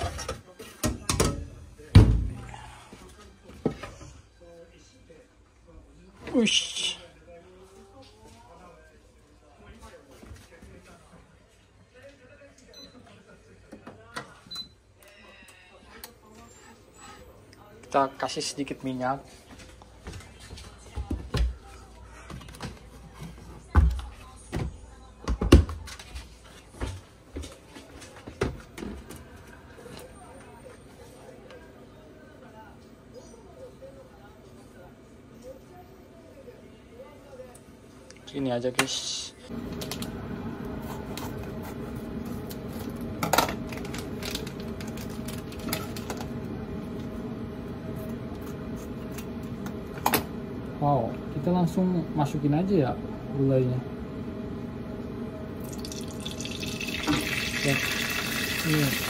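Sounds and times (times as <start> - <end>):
induction hob hum: 39.5 - 59.0.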